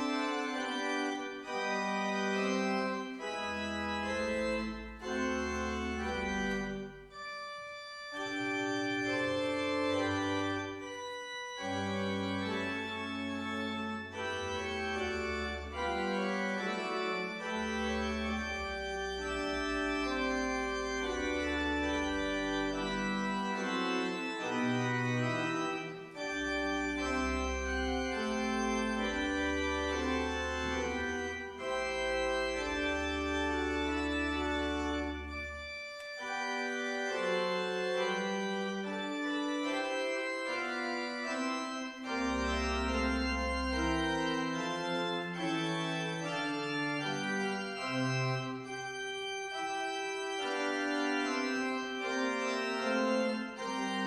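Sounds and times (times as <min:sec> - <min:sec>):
church organ playing: 0:00.0 - 0:54.0.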